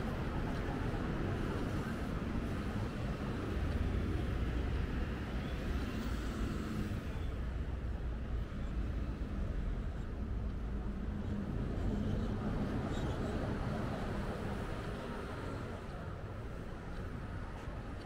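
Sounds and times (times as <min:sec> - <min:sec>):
reversed street traffic rumble: 0:00.0 - 0:18.0.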